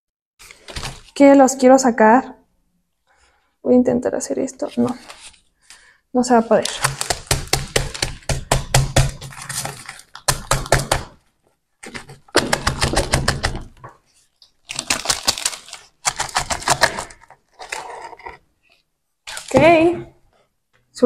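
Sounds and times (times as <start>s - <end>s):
plastic plant pot crackling: 6.2s - 8.1s, 14.1s - 18.0s.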